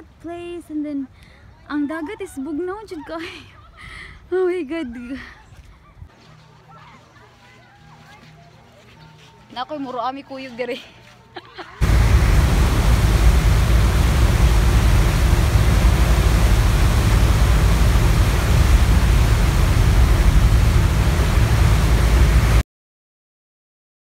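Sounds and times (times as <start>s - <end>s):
propeller wake churning: 11.8s - 22.6s
ship engines: 11.8s - 22.6s
wind on microphone: 11.8s - 22.6s.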